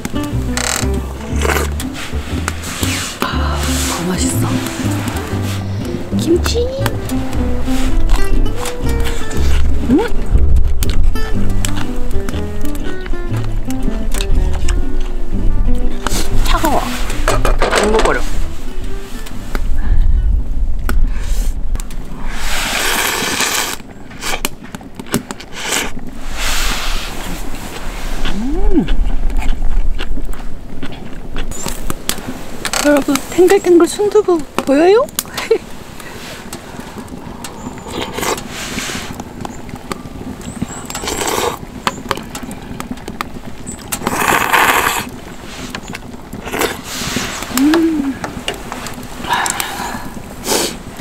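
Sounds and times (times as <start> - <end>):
person slurping noodles: 0.8 - 6.0, 22.3 - 24.4, 41.0 - 41.6, 44.0 - 45.1, 49.3 - 50.8
wind buffeting microphone: 4.0 - 22.8, 25.9 - 51.0.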